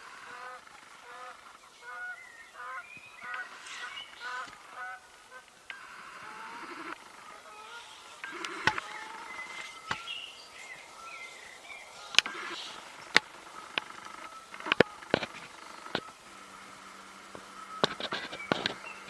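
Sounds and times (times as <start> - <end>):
faint bird calls: 0.0 - 19.0
sharp clicks and pops: 8.1 - 11.0, 11.6 - 16.2, 17.3 - 19.0.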